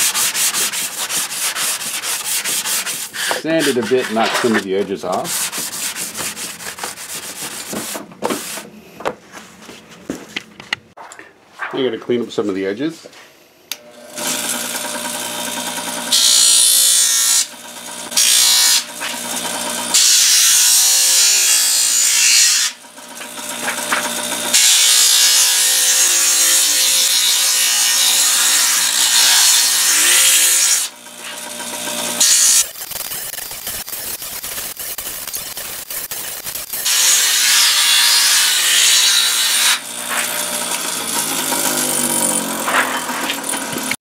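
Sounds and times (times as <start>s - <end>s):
metal grinding on wheel: 0.0s - 7.8s, 28.8s - 37.3s, 39.3s - 44.0s
bench grinder humming: 0.0s - 8.0s, 13.7s - 44.0s.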